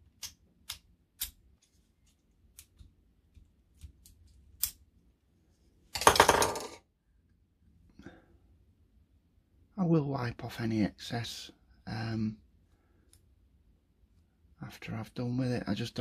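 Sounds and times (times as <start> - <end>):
clicks and taps of small parts: 0.0 - 4.8.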